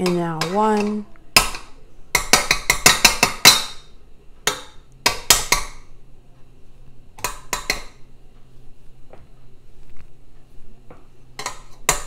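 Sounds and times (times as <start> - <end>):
metal spoon tapping steel bowl: 0.0 - 3.8, 7.2 - 8.0, 11.4 - 12.0.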